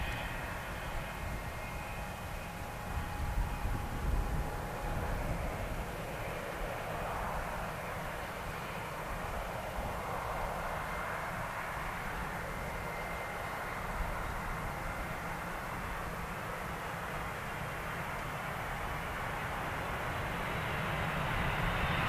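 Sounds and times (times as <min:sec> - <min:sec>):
faint high engine whine: 0:00.0 - 0:22.0
jet engines roaring: 0:00.0 - 0:22.0.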